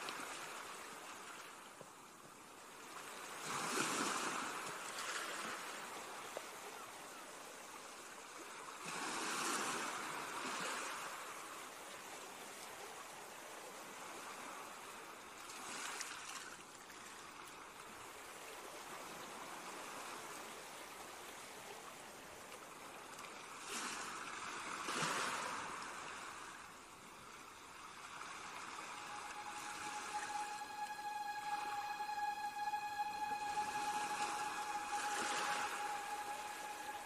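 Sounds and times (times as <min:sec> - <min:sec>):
ocean surf washing ashore: 0:23.6 - 0:37.0.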